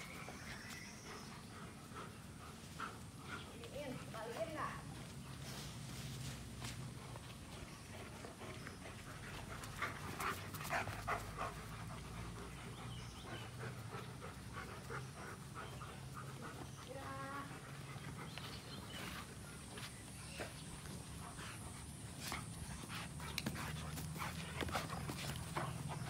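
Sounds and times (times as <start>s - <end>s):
dogs panting: 0.0s - 26.0s.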